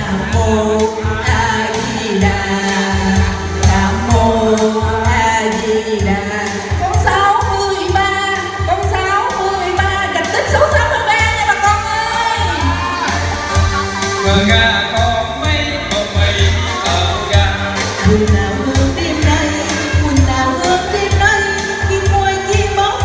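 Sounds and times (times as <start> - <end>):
woman singing into microphone: 0.0 - 14.2, 18.0 - 23.0
keyboard playing: 0.0 - 23.0
steady drum beat: 0.0 - 23.0.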